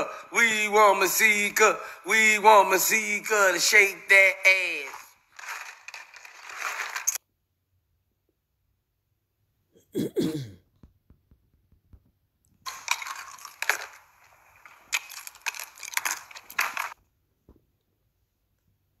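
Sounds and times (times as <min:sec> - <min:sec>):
crackling crunching noise: 0:03.0 - 0:07.2, 0:10.8 - 0:17.0.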